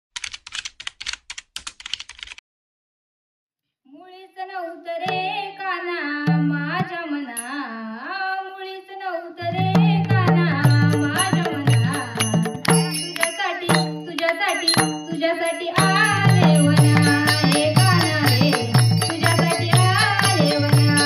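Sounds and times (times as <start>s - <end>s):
woman singing into microphone: 3.9s - 12.3s, 13.1s - 21.0s.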